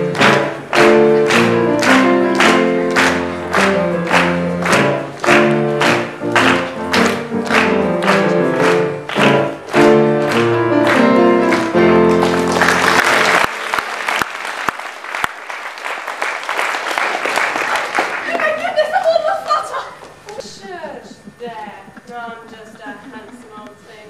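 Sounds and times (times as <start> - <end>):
stage music: 0.0 - 14.7
audience applause: 0.0 - 19.6.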